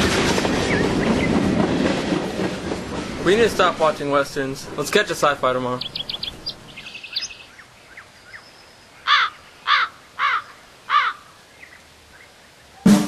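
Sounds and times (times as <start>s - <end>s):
bird calling: 5.6s - 13.0s
faint small-bird chirps: 5.8s - 8.9s.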